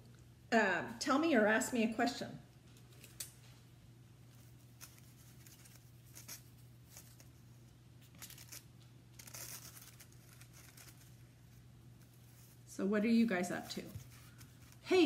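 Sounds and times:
low steady hum: 0.0 - 15.0
gold leaf rustling: 4.2 - 15.0.

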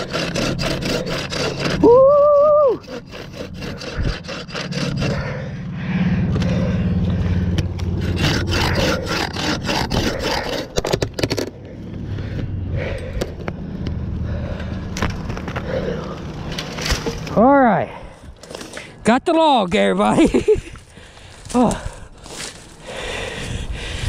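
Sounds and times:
bow saw rasping through wood: 0.0 - 5.6, 6.3 - 11.5
steady low hum: 0.0 - 19.1.

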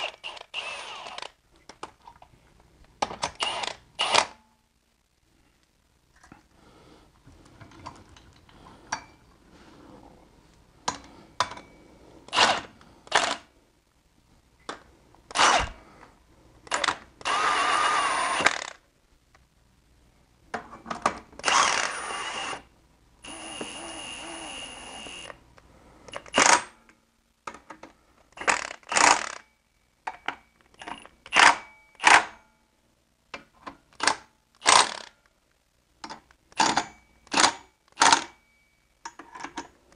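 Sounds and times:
power tool driving bolts: 0.0 - 1.3, 3.0 - 4.3, 12.3 - 13.4, 15.3 - 15.8, 16.7 - 18.8, 21.4 - 22.6, 26.2 - 26.7, 28.4 - 29.4, 31.3 - 32.3, 34.0 - 35.1, 36.6 - 38.3.

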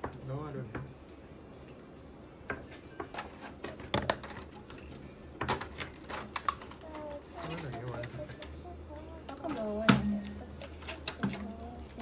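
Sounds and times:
packaging clicks and taps: 5.4 - 8.6.

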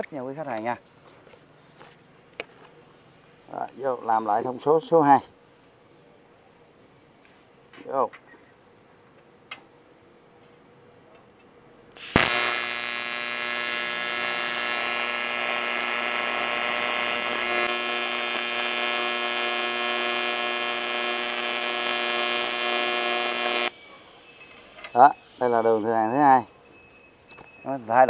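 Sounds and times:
welding arc crack: 12.0 - 23.8
welding arc electric buzz: 12.0 - 25.9.

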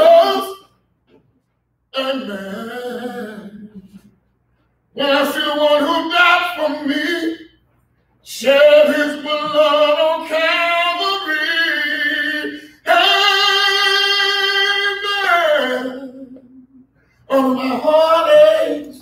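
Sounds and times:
person singing gospel song: 0.0 - 0.8, 1.9 - 4.2, 4.9 - 7.6, 8.2 - 19.0.

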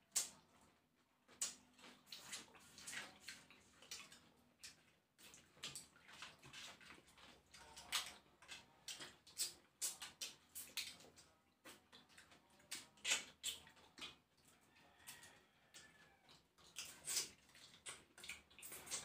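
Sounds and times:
lip smacks: 16.6 - 19.0.

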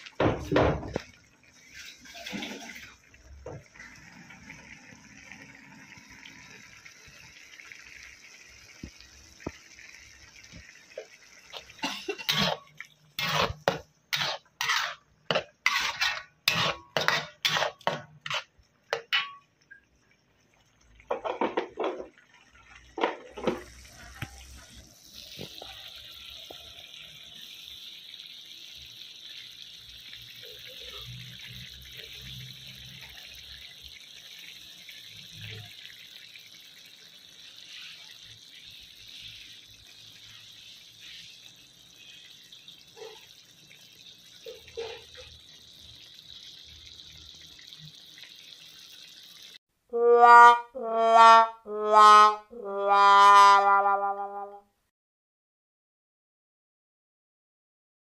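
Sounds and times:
sauce simmering and bubbling: 0.0 - 49.7
metal spatula scraping wok: 12.1 - 19.4.

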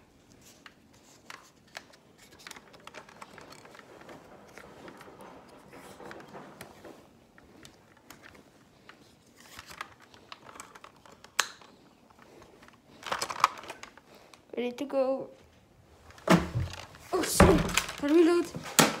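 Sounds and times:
plastic toy blaster rustling: 0.3 - 14.5, 16.0 - 19.0.

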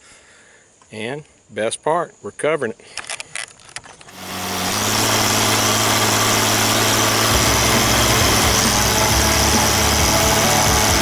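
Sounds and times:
tractor engine running: 3.9 - 11.0.

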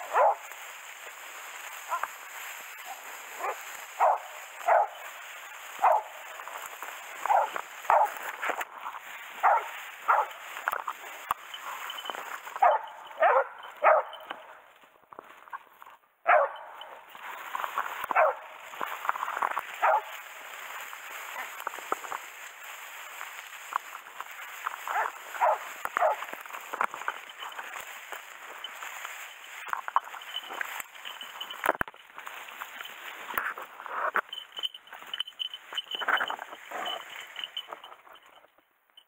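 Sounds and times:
hounds barking: 0.0 - 0.6, 1.8 - 2.1, 2.8 - 8.6, 9.4 - 10.4, 11.9 - 14.5, 16.2 - 17.2, 18.1 - 20.5, 21.1 - 21.8, 24.7 - 26.8, 35.4 - 37.9
grass rustling: 0.0 - 39.0.

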